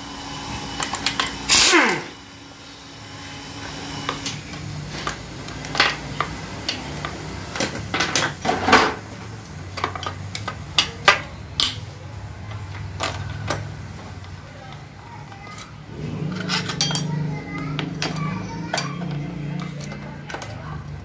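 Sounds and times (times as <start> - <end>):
metal tools clinking and knocking: 5.0 - 9.1, 15.4 - 20.7.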